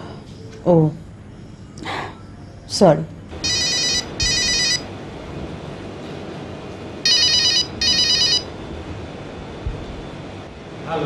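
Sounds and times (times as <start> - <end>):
telephone ringing: 3.4 - 4.9, 7.0 - 8.5.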